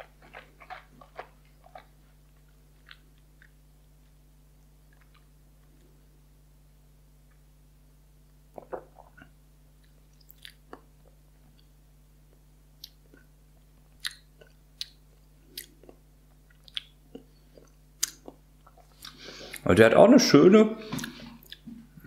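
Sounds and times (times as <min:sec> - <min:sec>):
low steady hum: 0:00.0 - 0:22.0
lip smacks and tongue clicks: 0:08.5 - 0:11.7, 0:14.0 - 0:19.7, 0:21.0 - 0:21.7.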